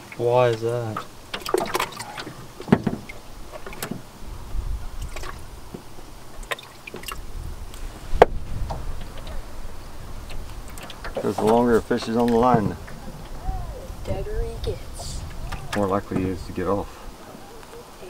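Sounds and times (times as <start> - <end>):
fishing gear knocks in metal boat: 2.6 - 4.0.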